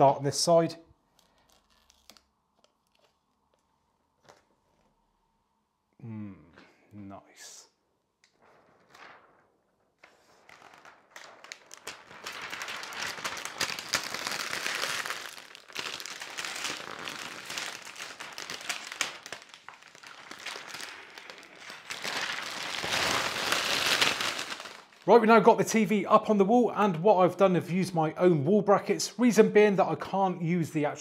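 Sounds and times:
plastic film crackling as peeled: 0:01.0 - 0:04.8, 0:08.2 - 0:25.1.

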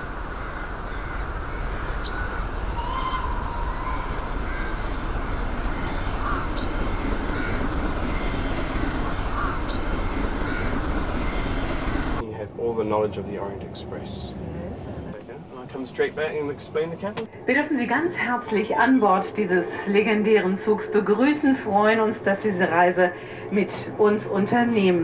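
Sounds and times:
train rumbling: 0:00.0 - 0:25.0
high bird-like calls: 0:00.1 - 0:12.2.

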